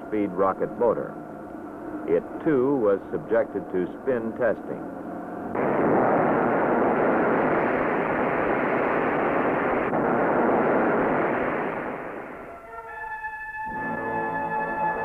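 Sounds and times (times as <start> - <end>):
rocket motor rushing: 5.5 - 12.4.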